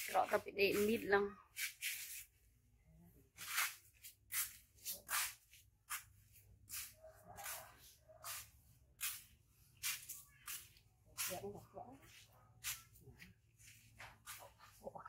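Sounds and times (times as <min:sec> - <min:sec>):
footsteps scuffing on dirt: 0:06.7 - 0:14.8.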